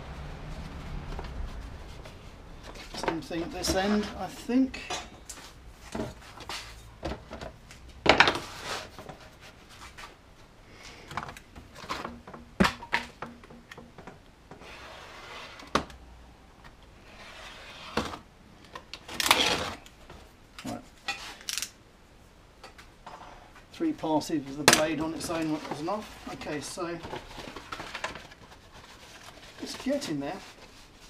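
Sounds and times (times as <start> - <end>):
knife scraping along steel ruler: 17.0 - 18.0.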